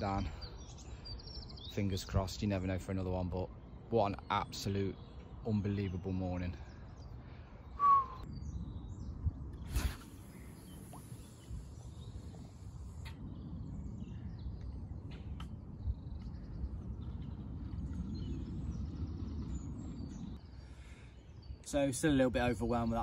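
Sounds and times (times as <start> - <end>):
birds chirping: 0.0 - 23.0
fishing rod whoosh: 9.6 - 11.6
line hissing off reel: 9.6 - 11.9.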